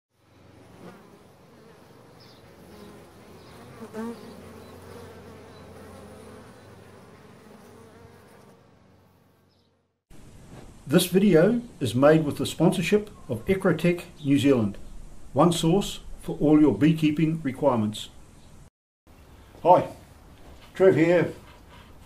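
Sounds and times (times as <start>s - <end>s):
bees buzzing: 0.2s - 9.9s.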